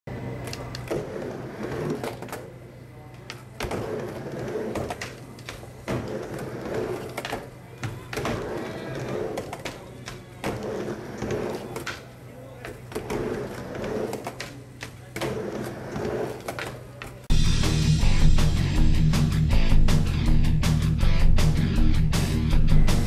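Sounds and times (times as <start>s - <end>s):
skateboard wheels rolling on concrete: 0.2s - 17.4s.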